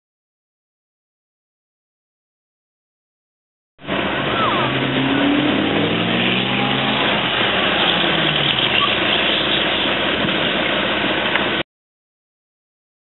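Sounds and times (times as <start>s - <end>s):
truck engines running: 3.8s - 11.6s.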